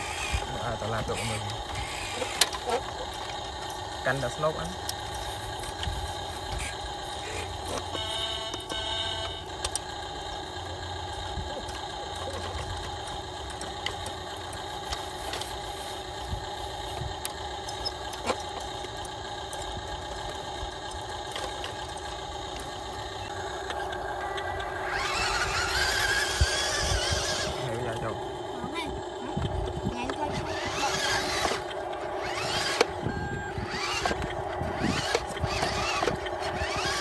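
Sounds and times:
toy truck engine idling hum: 0:00.0 - 0:37.0
toy loader bucket scraping dirt: 0:24.7 - 0:28.5, 0:30.0 - 0:37.0.

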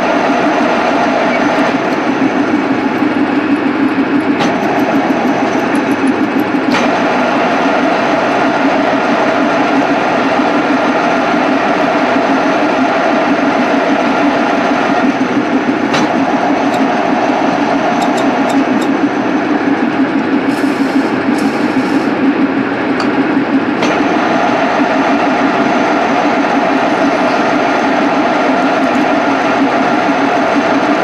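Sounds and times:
milling machine hum: 0:00.0 - 0:31.0
sharp ticks: 0:02.6 - 0:06.7.

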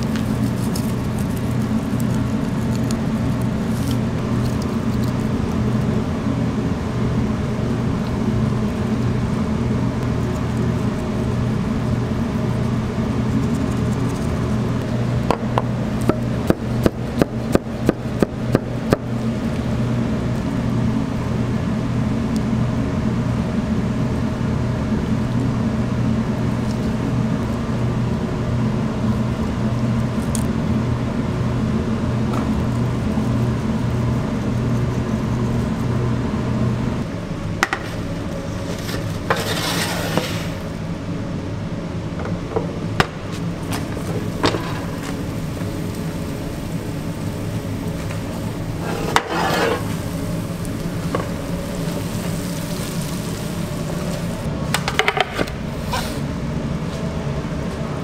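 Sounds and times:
kitchen equipment hum: 0:00.0 - 0:58.0
metal pizza pan scraping: 0:38.6 - 0:40.7, 0:48.8 - 0:50.2.

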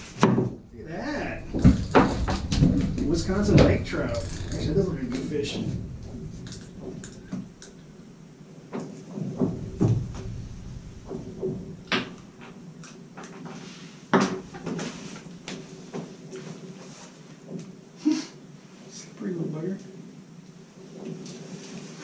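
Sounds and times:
faint steady hum: 0:00.0 - 0:22.0
knocks and clatters of handling: 0:01.4 - 0:07.9.

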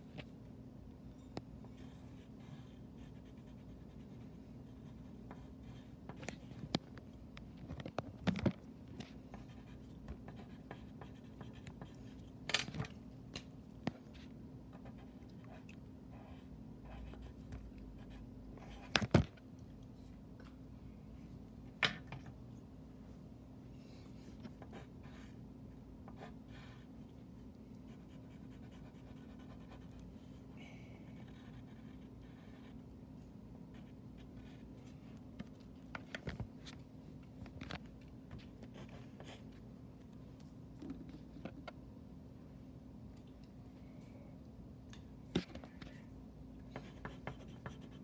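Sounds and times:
steady low hum: 0:00.0 - 0:48.0
marker and pencil scratching paper: 0:01.8 - 0:06.7, 0:09.0 - 0:12.4, 0:27.9 - 0:30.4, 0:31.1 - 0:32.8, 0:38.6 - 0:39.5, 0:46.7 - 0:48.0.

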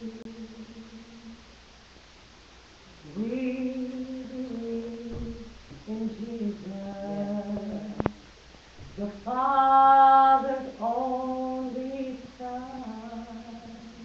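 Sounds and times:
woman singing held notes: 0:02.9 - 0:08.2, 0:09.0 - 0:14.0.

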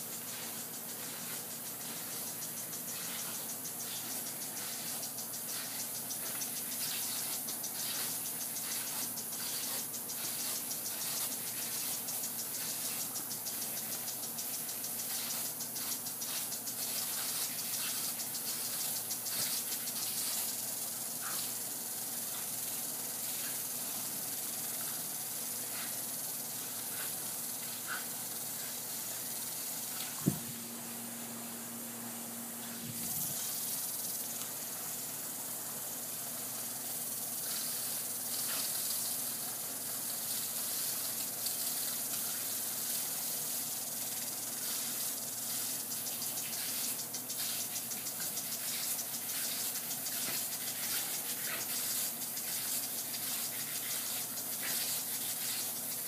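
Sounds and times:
sprinkler spraying water: 0:00.0 - 0:56.0
faint ticks: 0:00.2 - 0:20.5.

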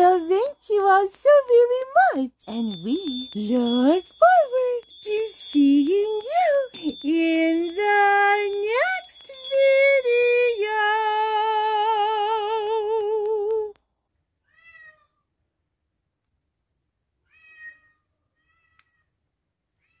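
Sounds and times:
cat meowing: 0:14.5 - 0:15.2, 0:17.2 - 0:19.1.

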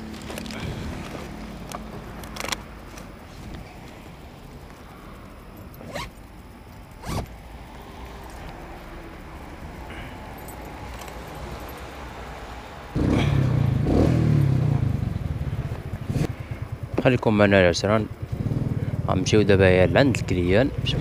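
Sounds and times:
zipper being pulled: 0:05.8 - 0:06.1, 0:07.0 - 0:07.3.

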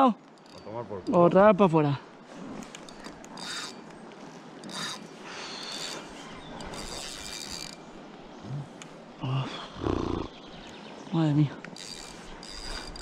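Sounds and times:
fishing reel drag buzzing: 0:02.9 - 0:03.8, 0:04.6 - 0:07.9, 0:11.7 - 0:13.0.

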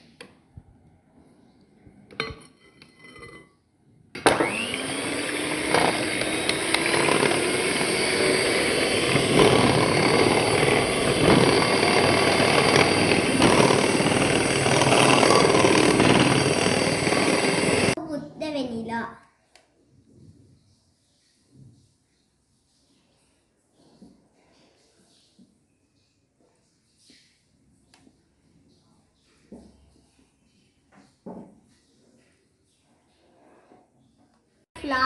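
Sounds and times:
electric hand mixer whine: 0:04.2 - 0:18.0.

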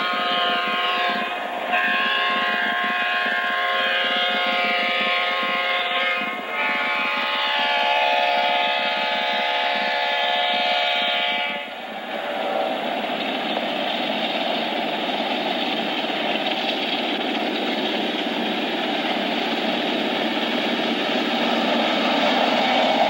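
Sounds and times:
train horn blast: 0:00.0 - 0:11.7
locomotive engine and rail rumble: 0:00.0 - 0:23.0.

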